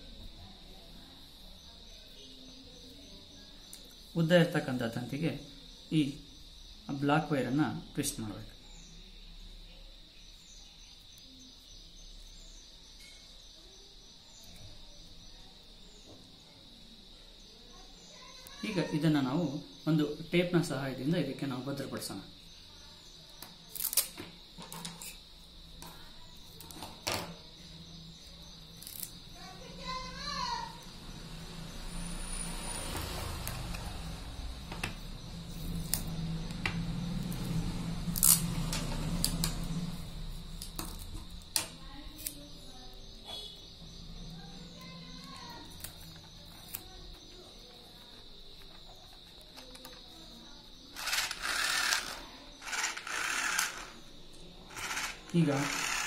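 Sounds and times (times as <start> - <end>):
small motor whirring: 51.0 - 54.1, 54.7 - 56.0.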